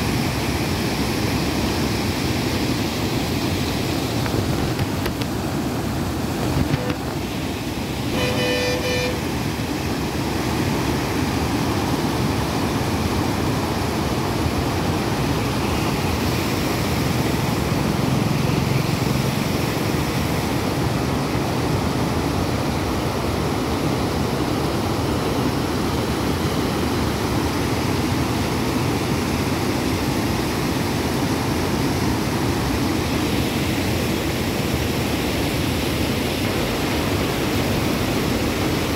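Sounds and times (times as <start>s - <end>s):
water rushing over weir: 0.0s - 38.9s
short pitched beep: 8.1s - 9.2s.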